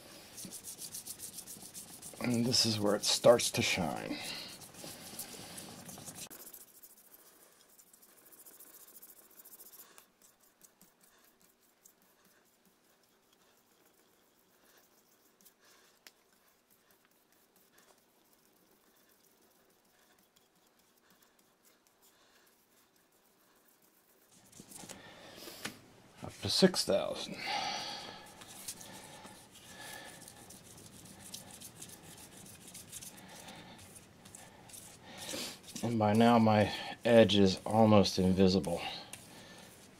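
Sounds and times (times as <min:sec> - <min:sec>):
sanding pad rubbing on ceramic: 0:00.0 - 0:24.8, 0:28.2 - 0:39.9.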